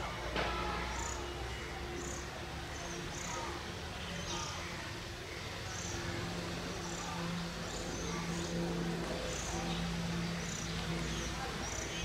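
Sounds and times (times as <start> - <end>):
locomotive engine drone: 0.0 - 12.0.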